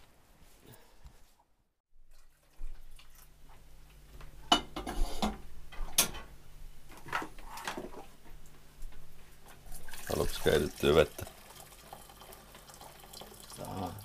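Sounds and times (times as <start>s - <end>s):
dishes and cutlery clinking: 4.4s - 6.3s.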